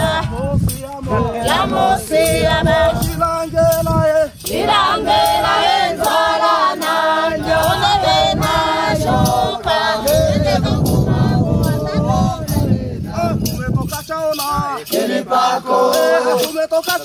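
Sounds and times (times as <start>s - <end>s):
group singing in several voices: 0.0s - 13.6s, 14.5s - 17.0s.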